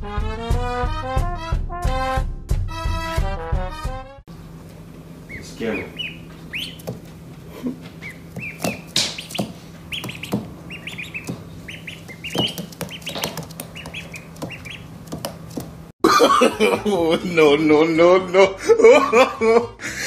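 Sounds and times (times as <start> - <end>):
birds chirping: 5.0 - 15.8.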